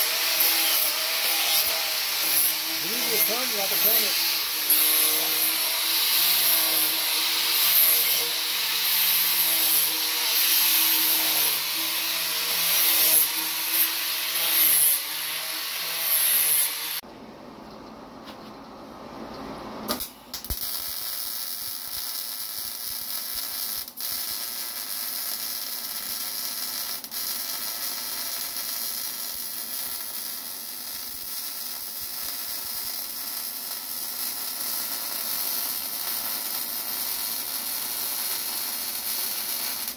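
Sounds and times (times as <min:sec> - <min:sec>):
angle grinder grinding steel: 0:00.0 - 0:17.0
electric arc welding hiss: 0:00.0 - 0:17.0, 0:20.0 - 0:39.9.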